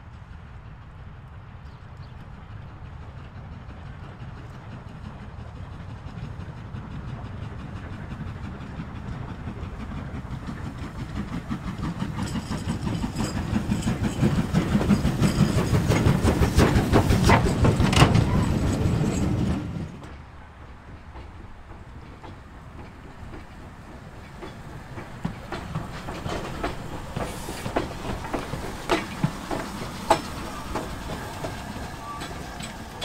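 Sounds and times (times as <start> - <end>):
steam locomotive rhythmic beat: 5.0 - 18.2, 21.5 - 33.0.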